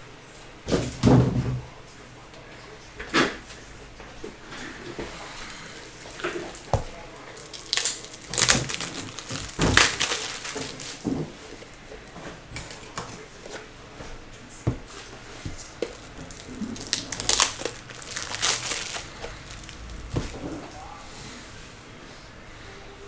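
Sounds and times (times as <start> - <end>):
plastic wrappers crinkling and tearing: 5.5 - 11.1, 15.6 - 20.8.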